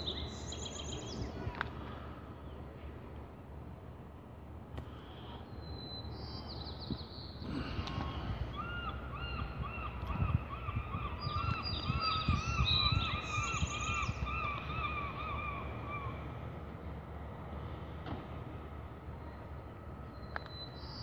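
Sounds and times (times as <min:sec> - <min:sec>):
birds calling harshly: 0:05.1 - 0:16.4
higher-pitched bird calls: 0:08.5 - 0:16.2.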